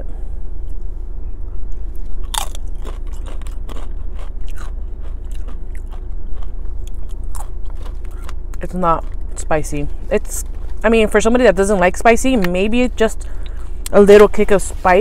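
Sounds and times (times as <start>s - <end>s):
steady low rumble: 0.0s - 15.0s
crunching and chewing chip: 1.8s - 9.5s.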